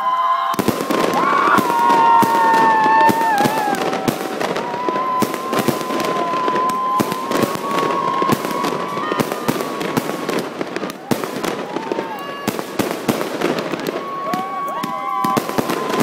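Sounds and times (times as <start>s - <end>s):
high firework whistle: 0.0s - 16.0s
fireworks bangs and crackles: 0.4s - 16.0s.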